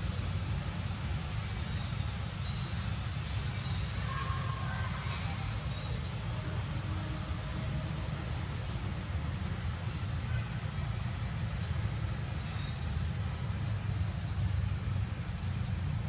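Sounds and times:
faint hiss: 0.0 - 16.0
low outdoor rumble: 0.0 - 16.0.

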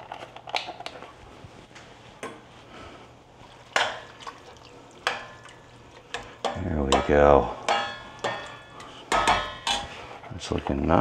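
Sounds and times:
broth sloshing: 3.3 - 6.5
spoon clanking against metal pot: 5.0 - 10.0.

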